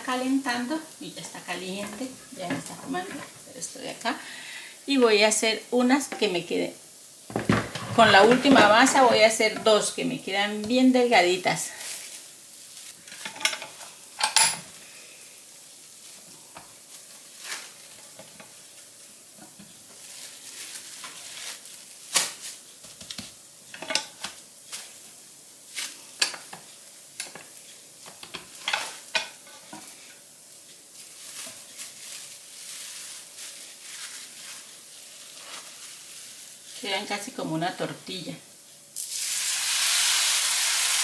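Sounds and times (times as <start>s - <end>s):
dough sizzling in frying pan: 0.0s - 41.0s
plastic wrap crinkling: 7.3s - 13.8s, 15.9s - 23.4s, 24.1s - 26.4s, 30.9s - 37.5s.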